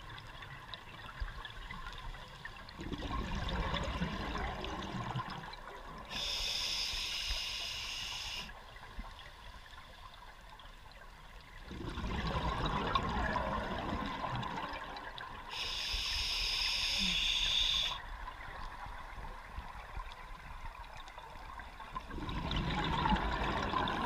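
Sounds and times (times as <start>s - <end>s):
exhaled bubbles gurgling: 2.6s - 6.3s, 11.6s - 15.7s, 21.4s - 24.0s
scuba regulator inhale hiss: 6.1s - 8.5s, 15.5s - 18.0s.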